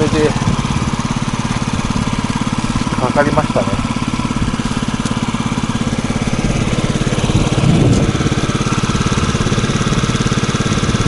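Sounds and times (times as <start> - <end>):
scooter engine idling: 0.0 - 11.0.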